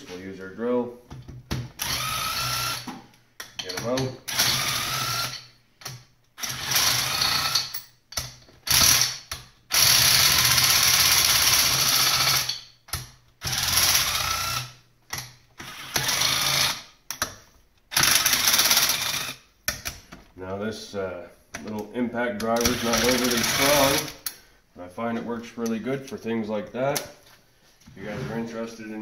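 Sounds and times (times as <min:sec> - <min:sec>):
cordless impact driver bursts: 0:01.8 - 0:02.9, 0:04.3 - 0:05.5, 0:06.4 - 0:07.7, 0:08.6 - 0:12.5, 0:13.4 - 0:14.8, 0:15.6 - 0:16.9, 0:17.9 - 0:19.4, 0:22.6 - 0:24.2.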